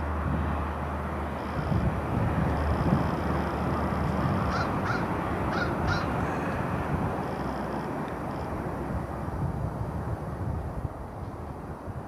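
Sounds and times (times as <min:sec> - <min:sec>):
jet engines rumbling: 0:00.0 - 0:12.0
crow cawing: 0:04.5 - 0:06.6.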